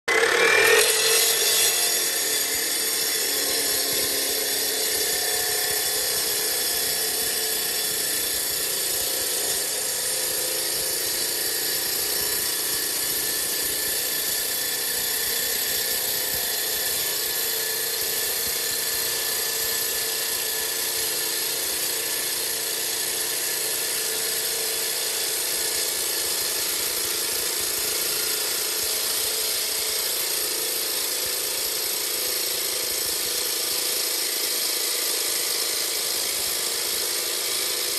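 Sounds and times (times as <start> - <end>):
slab cutter cutting stone: 0.1 - 37.9.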